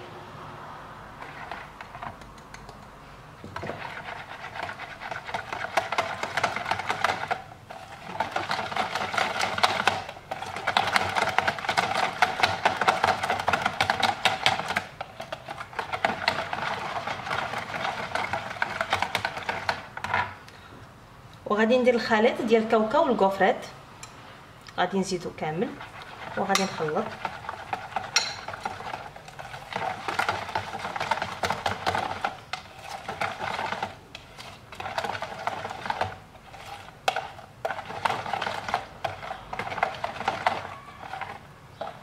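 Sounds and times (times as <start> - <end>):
whisk clicking and scraping bowl: 1.2 - 20.4, 25.2 - 42.0.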